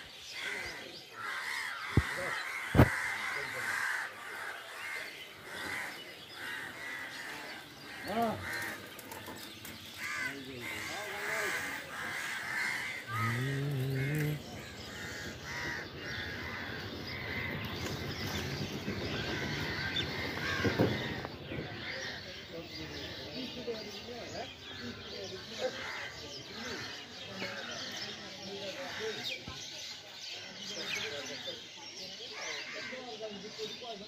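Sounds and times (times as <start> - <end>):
crows cawing: 0.3 - 18.4, 19.2 - 22.2
background voices: 6.7 - 16.9.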